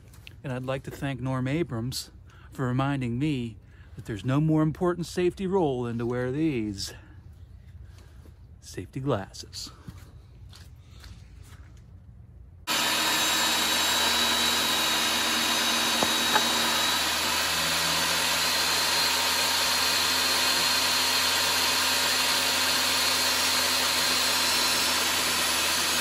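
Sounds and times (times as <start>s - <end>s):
saw blade ripping board: 12.7s - 26.0s
table saw motor whine: 12.7s - 26.0s.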